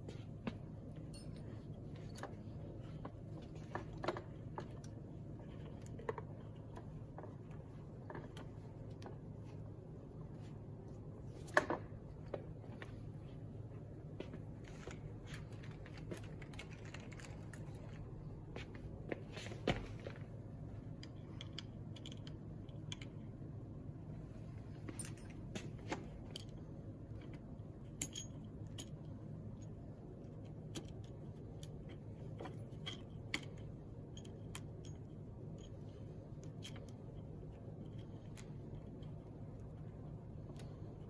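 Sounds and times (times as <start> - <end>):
low background hum: 0.0 - 41.0
clicks and rattles of handling: 14.2 - 20.3.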